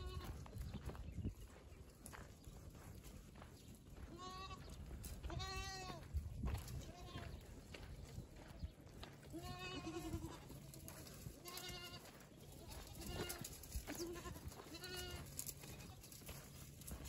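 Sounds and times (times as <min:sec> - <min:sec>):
goats bleating: 0:00.0 - 0:00.4, 0:04.1 - 0:06.0, 0:09.3 - 0:16.2.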